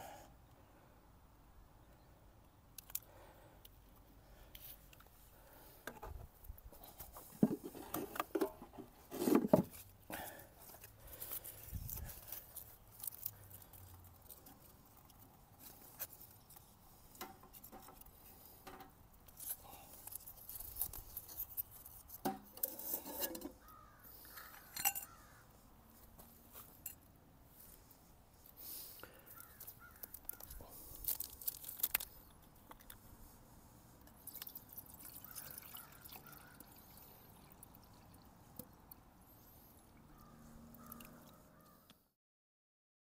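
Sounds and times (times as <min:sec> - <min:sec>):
things handled in wooden box: 0:05.8 - 0:23.6
knife shaving wood: 0:09.0 - 0:18.5, 0:19.3 - 0:22.2, 0:27.7 - 0:33.0
crow cawing: 0:23.6 - 0:25.5, 0:29.3 - 0:30.5, 0:35.2 - 0:36.7, 0:40.1 - 0:41.9.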